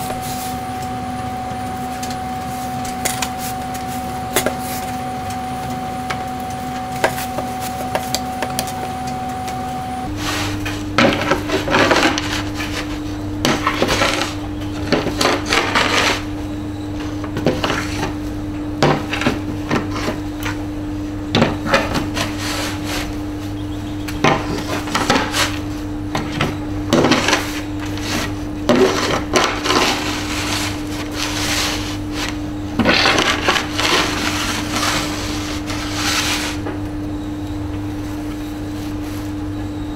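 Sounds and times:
steady low hum: 0.0s - 39.9s
iron scraping over wooden board: 21.6s - 23.2s, 26.9s - 36.6s.

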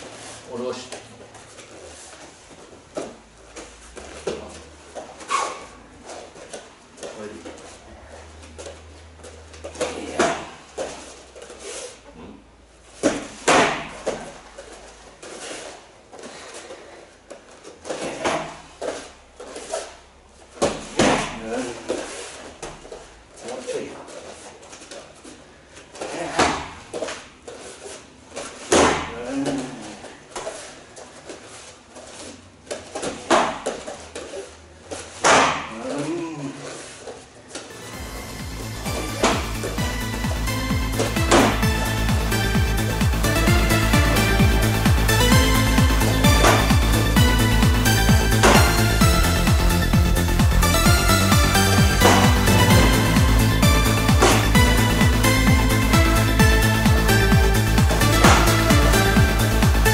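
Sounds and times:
footwork shuffling on mat: 0.0s - 35.3s, 36.2s - 59.9s
punches and kicks on pads: 13.0s - 14.4s, 20.6s - 21.6s, 28.6s - 29.5s, 33.0s - 33.8s, 35.2s - 35.9s, 38.9s - 39.8s, 41.0s - 41.8s, 45.2s - 47.4s, 48.1s - 49.6s, 51.1s - 55.2s, 57.4s - 59.8s.

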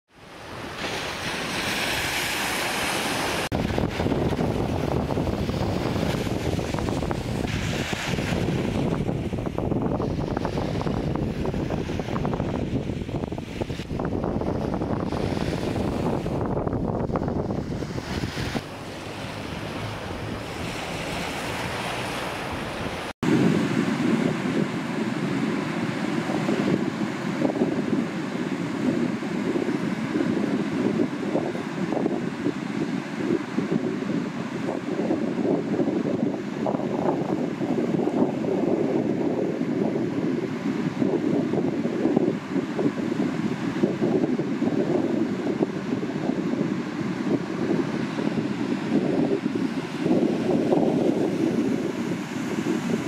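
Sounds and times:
surf: 0.1s - 53.0s
surf hiss: 0.2s - 14.1s
wind buffeting microphone: 0.2s - 53.0s.

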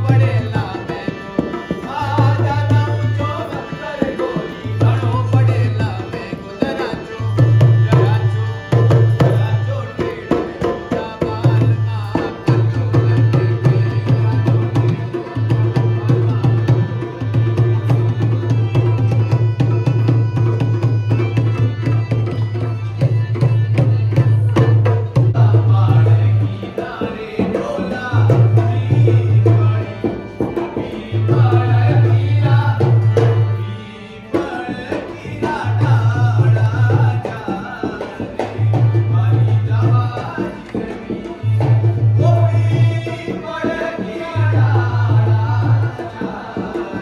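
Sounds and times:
hand drum fast rhythm: 0.0s - 33.5s.

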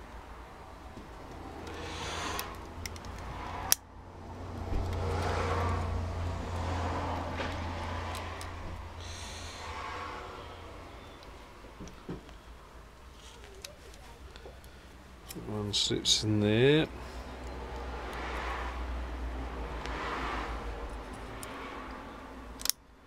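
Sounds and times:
metal parts clicking and scraping: 1.6s - 3.8s
rushing noise: 4.6s - 11.0s.

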